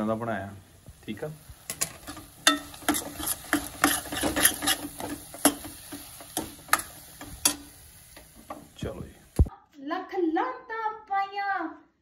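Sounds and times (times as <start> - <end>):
metal ladle scraping a steel pan: 1.8 - 5.7.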